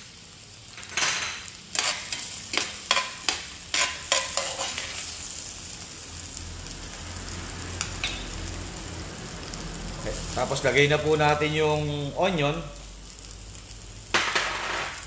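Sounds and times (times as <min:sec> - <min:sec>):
garlic sizzling in a skillet: 0:00.0 - 0:15.0
spoon knocking and scraping pan: 0:00.8 - 0:05.0.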